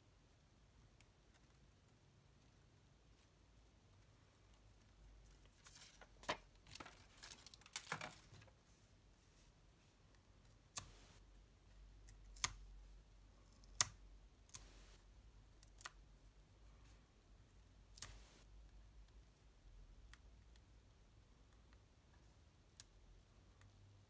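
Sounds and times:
paper and card rustling: 5.3s - 8.8s.

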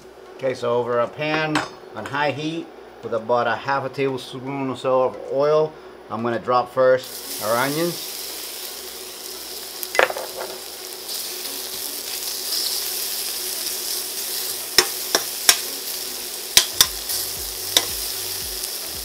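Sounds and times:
onions sizzling in oil: 7.0s - 19.0s.

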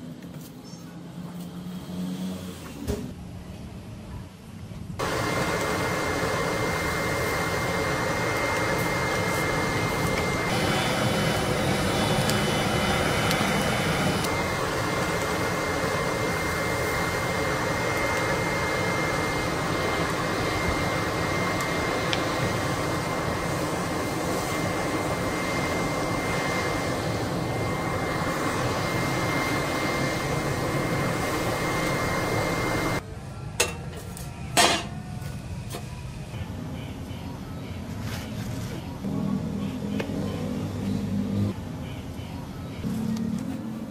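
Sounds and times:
air and fire rushing: 5.0s - 33.0s
blower motor whine: 5.0s - 33.0s.

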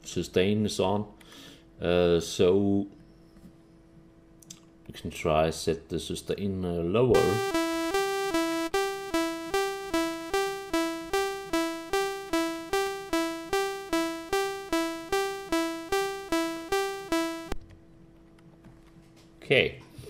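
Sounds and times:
repeated synthesizer piano note: 7.2s - 17.6s.

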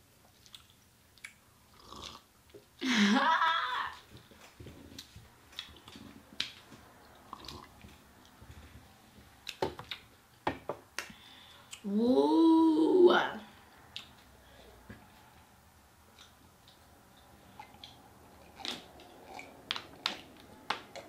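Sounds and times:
wet mouth clicks and smacks: 0.4s - 1.4s
chicken wings being chewed: 4.1s - 8.8s, 16.1s - 21.0s.

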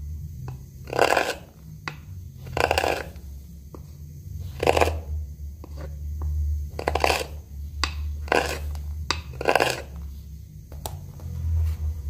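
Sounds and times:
steady low hum: 0.0s - 12.0s
gouge scraping wood: 0.8s - 3.3s, 4.4s - 5.9s, 6.7s - 10.1s.

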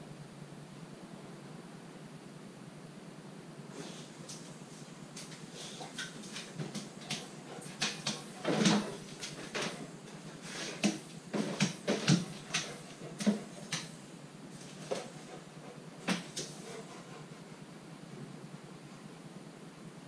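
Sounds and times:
dog claws clicking on tiles: 5.2s - 14.0s
paws knocking on wooden worktop: 5.2s - 14.0s.

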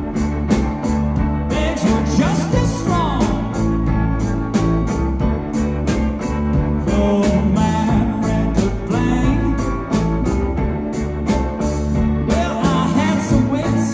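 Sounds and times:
bass guitar: 0.0s - 13.9s
electric guitars: 0.0s - 13.9s
steady drum beat: 0.0s - 13.9s.

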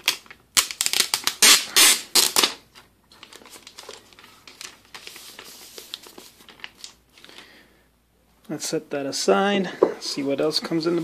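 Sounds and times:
plastic wrap crinkling: 0.0s - 7.6s.

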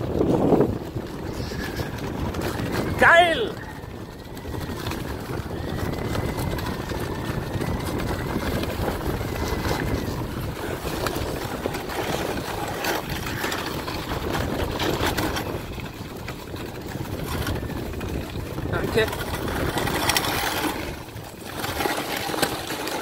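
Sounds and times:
sled runners scraping snow: 0.0s - 23.0s
wind on microphone: 0.0s - 23.0s
snow crunches: 6.7s - 16.2s.

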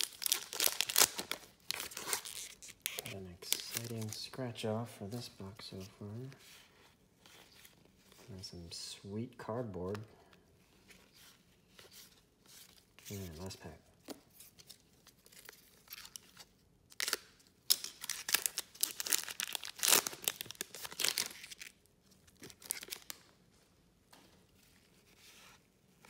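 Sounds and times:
foil pack tearing and crinkling: 0.0s - 3.0s, 16.9s - 21.7s
wrapper and cards rustling: 0.0s - 8.6s, 10.6s - 23.6s.

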